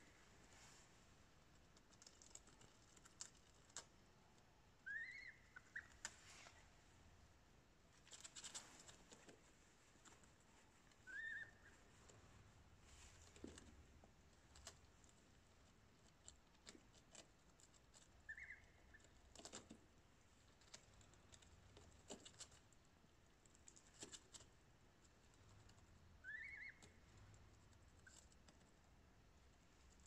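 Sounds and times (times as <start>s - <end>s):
gosling peeps: 4.8s - 6.6s, 11.0s - 11.9s, 18.1s - 19.3s, 26.2s - 27.2s.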